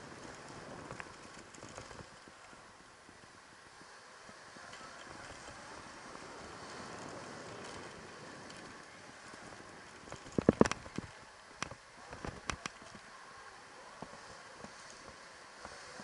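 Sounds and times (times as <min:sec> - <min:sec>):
bike knocks and rattles: 0:00.0 - 0:02.5, 0:04.2 - 0:13.1
wind and tyres hissing: 0:00.0 - 0:16.0.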